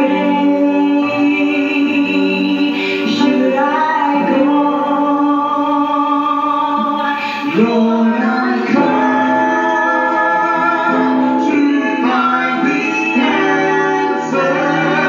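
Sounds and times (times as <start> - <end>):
backing music: 0.0 - 15.0
choir singing gospel song: 0.0 - 15.0.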